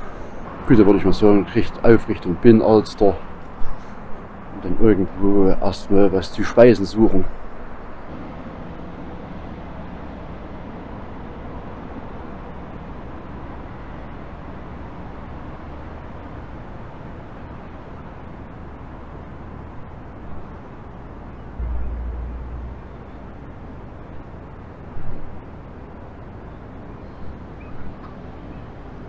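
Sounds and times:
city background noise: 0.0s - 29.0s
low rumbles: 7.6s - 26.5s.

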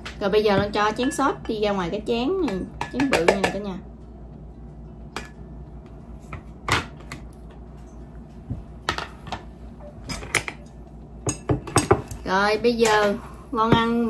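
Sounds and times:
tableware clicking and tapping: 2.4s - 3.6s, 10.1s - 12.2s.

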